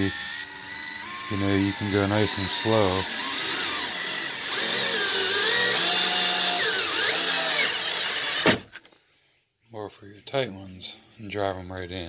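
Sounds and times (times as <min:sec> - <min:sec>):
cordless screwdriver motor whining: 0:00.0 - 0:08.9.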